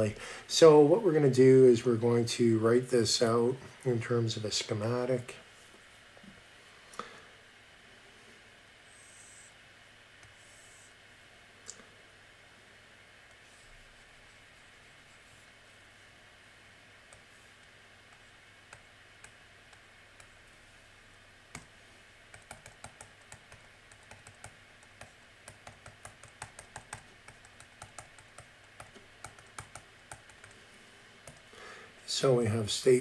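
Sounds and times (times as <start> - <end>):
faint room hiss: 0.0 - 33.0
faint steady hum: 0.0 - 33.0.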